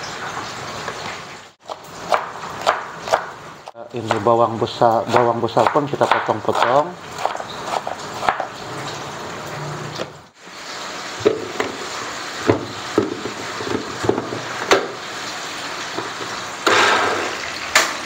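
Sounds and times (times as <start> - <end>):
knife cutting tomato on board: 1.7 - 3.3, 5.0 - 8.5.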